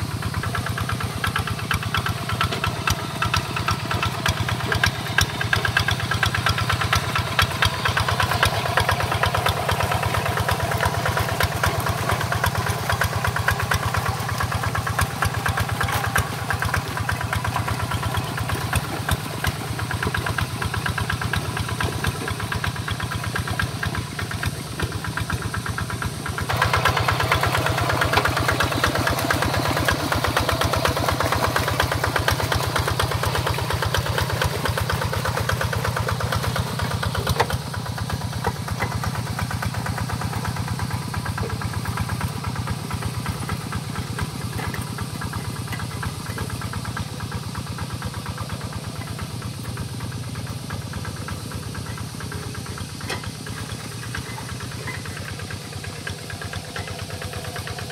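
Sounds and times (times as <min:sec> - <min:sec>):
diesel engine running under load: 0:00.0 - 0:57.9.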